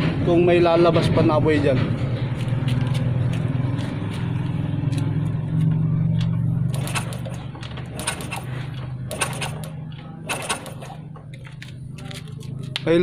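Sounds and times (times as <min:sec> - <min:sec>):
motorcycle kick-starter clacking: 0:04.9 - 0:13.0.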